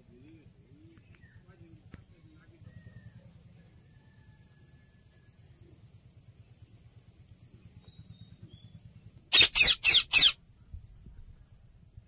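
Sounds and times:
faint low hum: 0.0s - 12.0s
parrot shrill calls: 9.3s - 10.4s.

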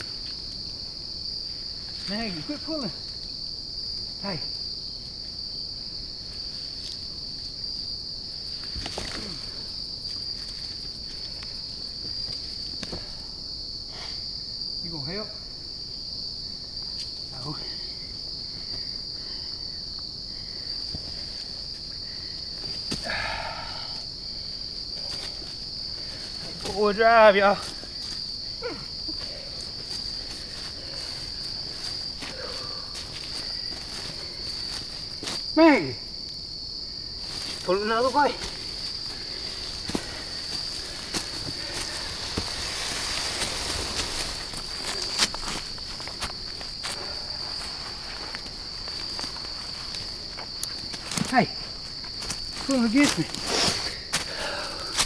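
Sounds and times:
high-pitched insect chorus: 0.0s - 55.0s
rustles of leaf litter: 37.2s - 50.2s.

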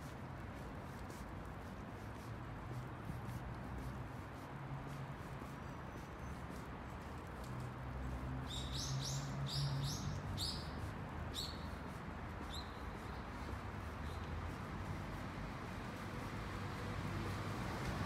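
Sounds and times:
small bird chirping: 8.4s - 14.3s.

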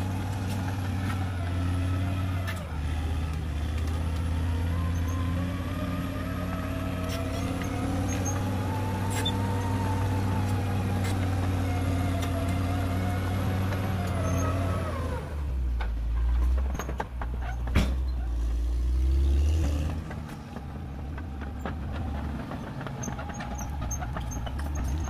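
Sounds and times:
bulldozer diesel engine with whine: 0.0s - 25.0s.

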